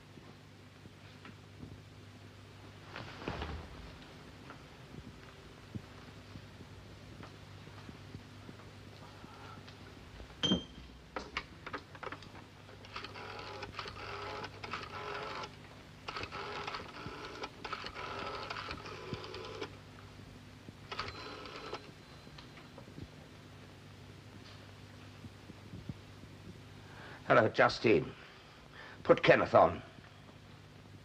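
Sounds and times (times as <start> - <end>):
rotary dial whirring and clicking: 12.8 - 19.8, 20.9 - 21.9.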